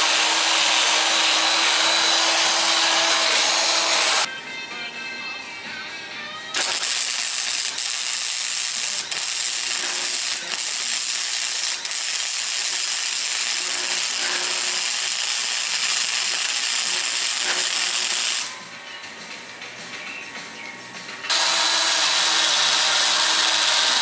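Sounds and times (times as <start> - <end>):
arc welding sizzle: 0.0 - 4.3, 6.5 - 18.6, 21.3 - 24.0.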